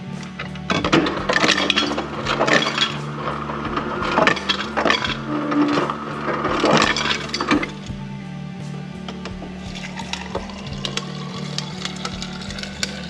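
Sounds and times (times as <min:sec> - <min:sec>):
ice cubes clattering into glass: 0:01.3 - 0:03.0, 0:04.0 - 0:07.8.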